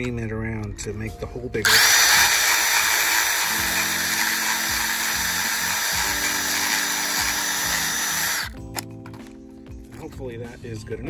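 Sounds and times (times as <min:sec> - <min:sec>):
cordless drill whining: 0:01.6 - 0:08.6.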